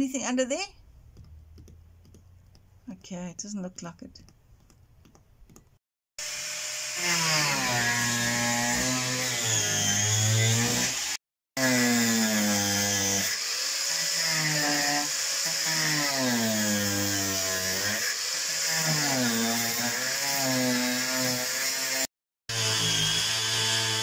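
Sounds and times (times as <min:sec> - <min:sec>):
power tool motor whine: 0:06.2 - 0:11.2, 0:22.5 - 0:24.0.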